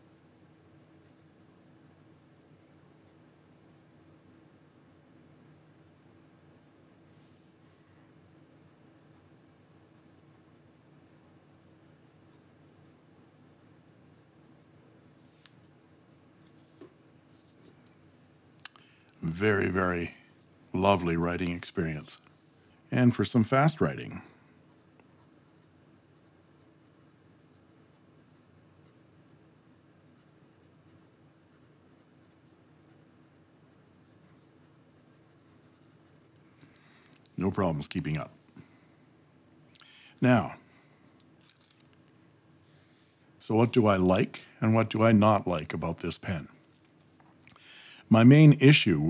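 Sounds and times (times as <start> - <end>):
fountain pen scratching on paper: 24.7 - 36.4.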